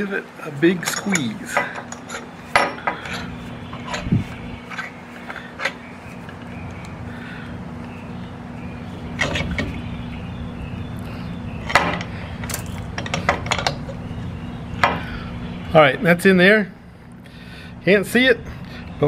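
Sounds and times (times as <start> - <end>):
low mechanical hum: 0.0 - 19.0
sharp knocks and clinks: 0.8 - 4.1, 11.6 - 14.0.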